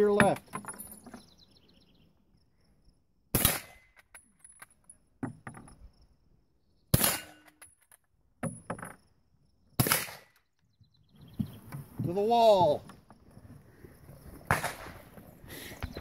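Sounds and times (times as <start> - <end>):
rifle shots with echo: 3.3 - 3.8, 6.9 - 7.4, 9.8 - 10.3, 14.5 - 15.1.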